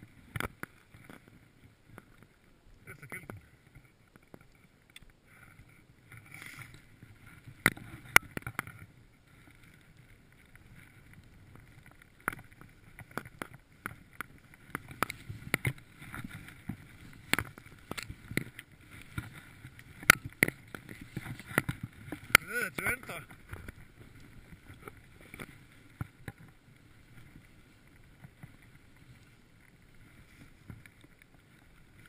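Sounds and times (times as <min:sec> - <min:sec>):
skis and poles clacking: 0:00.0 - 0:32.0.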